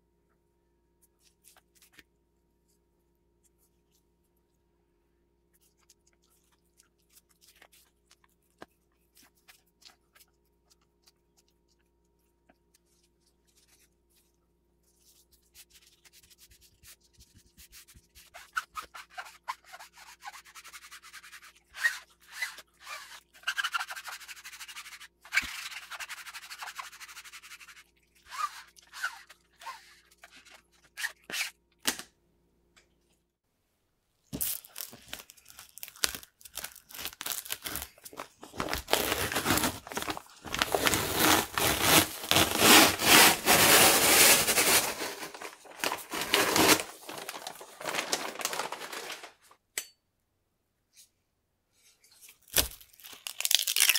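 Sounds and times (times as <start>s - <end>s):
plastic squeegee scraping fabric: 38.7s - 46.9s.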